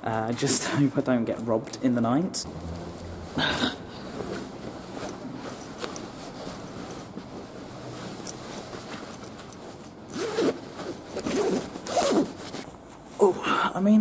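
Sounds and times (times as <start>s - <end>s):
sleeping bag rustling on concrete: 2.6s - 13.2s.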